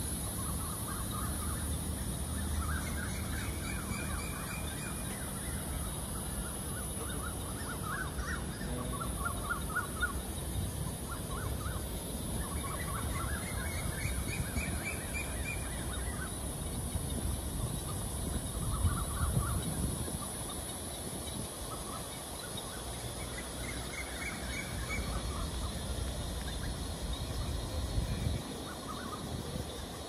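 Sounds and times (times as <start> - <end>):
steady high hiss: 0.0 - 30.0
birds chattering: 6.4 - 10.1.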